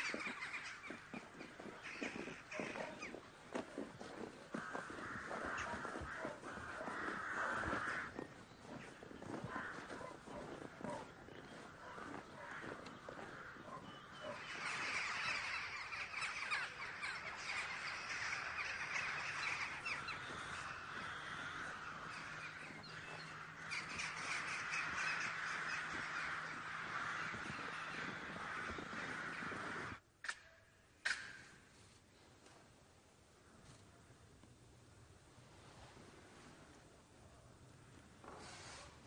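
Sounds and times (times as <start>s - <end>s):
crows cawing: 0.0s - 3.2s, 4.0s - 30.0s.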